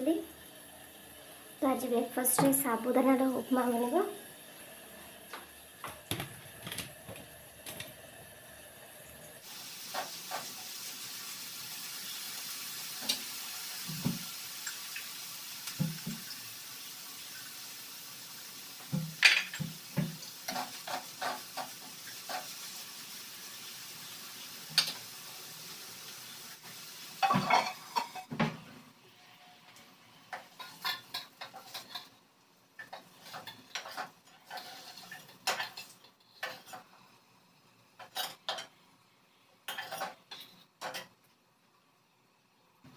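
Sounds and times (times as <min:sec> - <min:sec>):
steady hiss: 0:00.0 - 0:28.0
utensils clinking against pots: 0:19.2 - 0:19.7, 0:27.2 - 0:28.3, 0:32.8 - 0:36.9, 0:38.0 - 0:38.7, 0:39.7 - 0:41.1.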